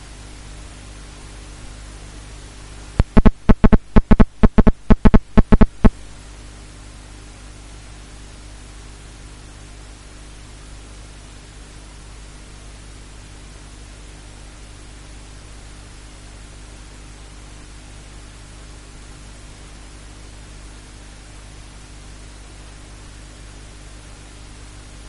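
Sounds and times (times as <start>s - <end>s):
steady hiss with low hum: 0.0s - 25.0s
loud thumps: 3.0s - 5.9s.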